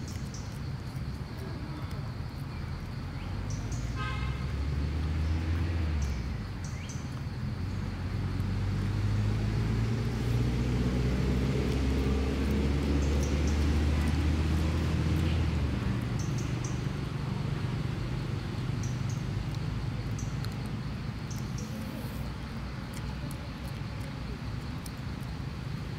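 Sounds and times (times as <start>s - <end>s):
vehicle engine running: 7.4s - 25.9s.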